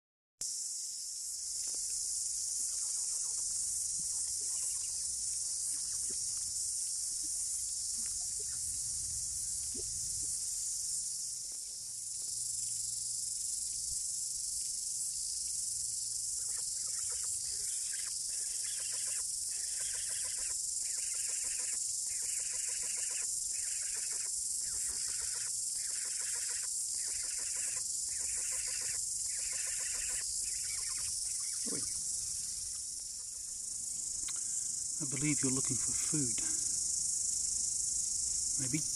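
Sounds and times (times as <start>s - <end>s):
high-pitched insect chorus: 0.4s - 38.9s
insect buzzing call: 0.4s - 38.9s.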